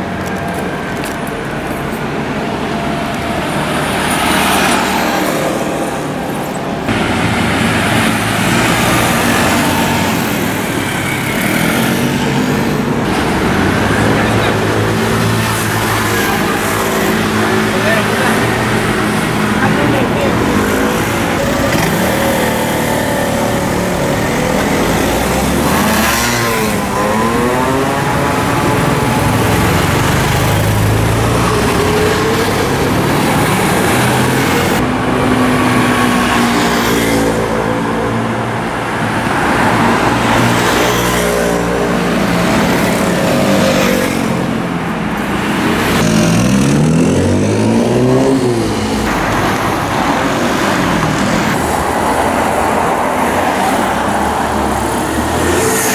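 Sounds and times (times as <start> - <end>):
motorcycles and cars passing: 0.0 - 55.9
vehicle engine revving: 45.3 - 55.9.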